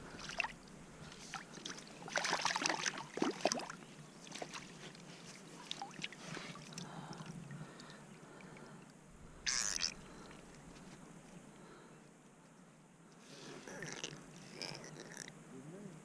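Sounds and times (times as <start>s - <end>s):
water splashing: 0.0s - 8.7s, 9.4s - 10.5s.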